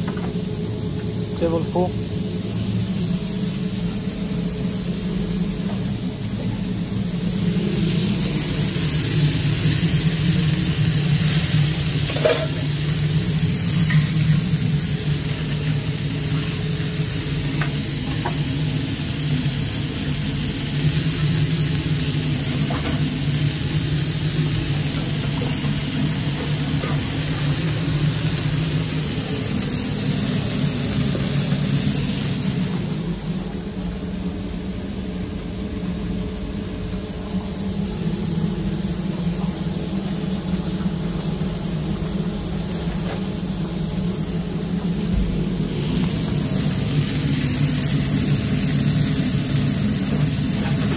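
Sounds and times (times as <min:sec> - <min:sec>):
burgers sizzling on a grill: 0:01.4 - 0:33.1, 0:37.6 - 0:50.9.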